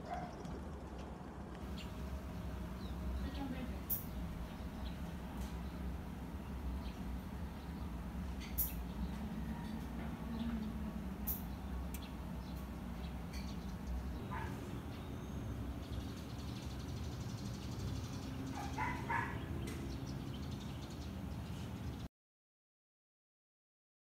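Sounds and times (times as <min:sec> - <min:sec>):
low outdoor rumble: 0:00.0 - 0:22.1
distant animal calls: 0:06.9 - 0:11.8, 0:13.3 - 0:15.6, 0:18.4 - 0:19.9.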